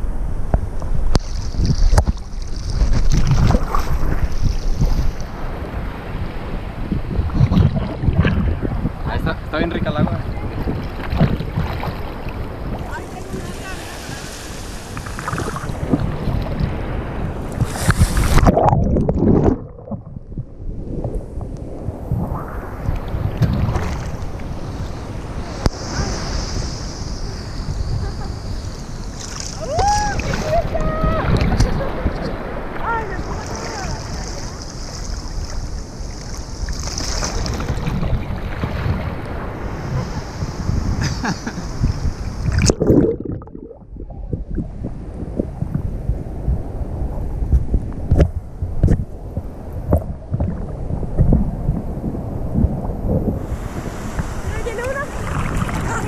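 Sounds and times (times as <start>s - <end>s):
water washing over camera: 1.1s - 5.4s, 7.1s - 8.7s, 9.3s - 20.4s, 42.4s - 45.9s, 47.5s - 56.0s
seawater sloshing over camera: 1.2s - 5.3s, 10.3s - 16.8s, 54.1s - 56.0s
surf breaking: 1.2s - 20.2s, 49.3s - 56.0s
muffled underwater bubbling: 14.8s - 16.7s, 17.5s - 21.2s, 42.4s - 45.9s, 49.9s - 53.5s.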